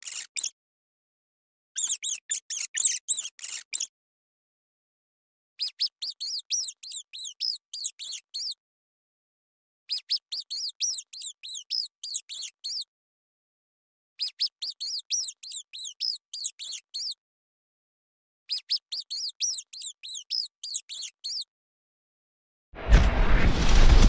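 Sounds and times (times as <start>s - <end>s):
rat squeaking: 0.0s - 0.6s, 1.8s - 3.9s, 5.6s - 8.6s, 9.9s - 12.9s, 14.2s - 17.2s, 18.5s - 21.5s.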